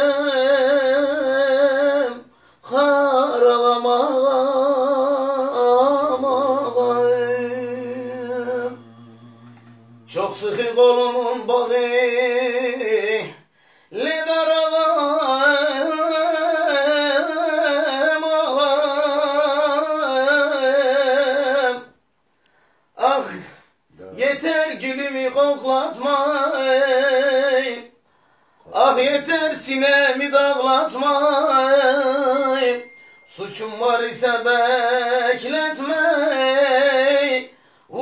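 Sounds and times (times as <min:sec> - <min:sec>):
man singing unaccompanied: 0:00.0 - 0:22.0, 0:23.0 - 0:28.0, 0:28.6 - 0:38.0
low steady hum: 0:00.1 - 0:13.8, 0:31.4 - 0:35.1.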